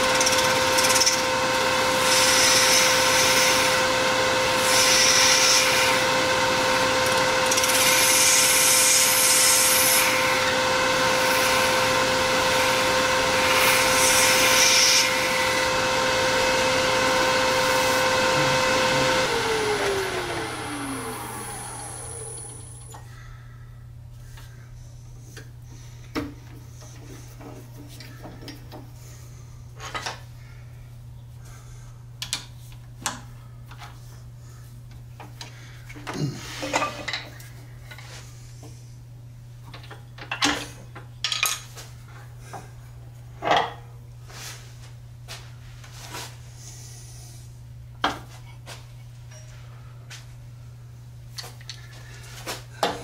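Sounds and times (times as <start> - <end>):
steady low hum: 15.1 - 39.7.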